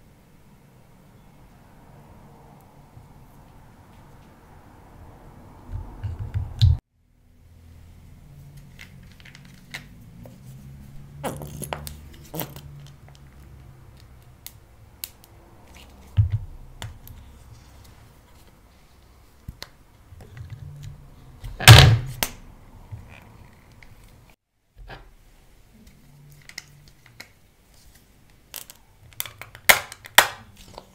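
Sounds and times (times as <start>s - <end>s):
plastic tube clicks and crackles: 28.4s - 30.9s.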